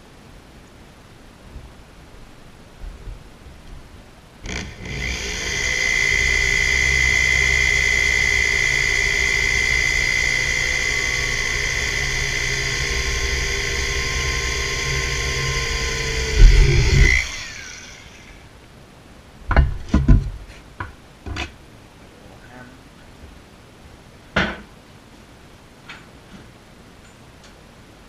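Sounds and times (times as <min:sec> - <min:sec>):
electric drill whining: 0:04.4 - 0:18.4.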